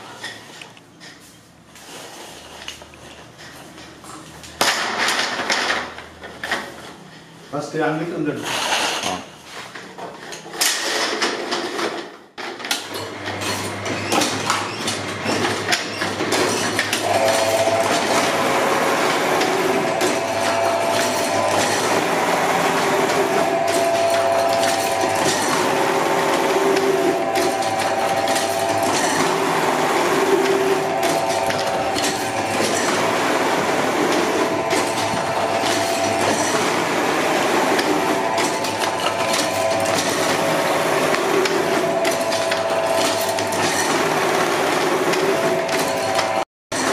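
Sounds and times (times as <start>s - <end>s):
machine rhythmic clatter: 12.6s - 46.9s
machine whine: 12.9s - 46.9s
low motor hum: 17.0s - 46.4s.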